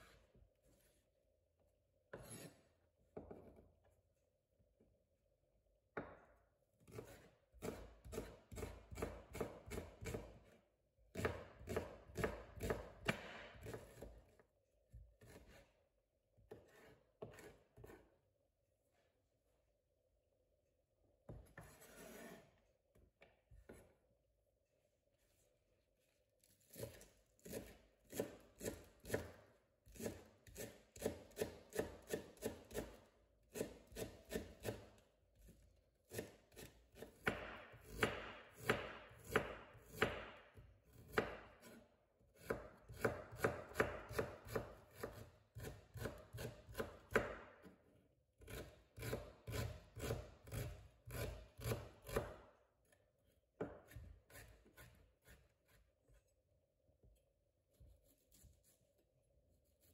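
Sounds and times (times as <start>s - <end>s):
knife chopping on wooden board: 6.8s - 14.2s, 15.2s - 15.6s, 16.5s - 18.0s, 26.7s - 41.8s, 42.4s - 47.8s, 48.4s - 52.4s, 53.6s - 55.5s.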